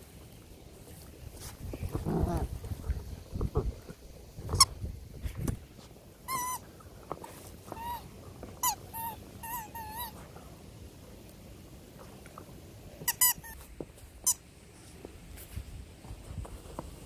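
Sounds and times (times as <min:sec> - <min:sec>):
puppies chewing: 0:05.4 - 0:13.6
rubber squeaky toys squeaking: 0:06.3 - 0:06.6, 0:07.7 - 0:10.2, 0:13.0 - 0:13.6.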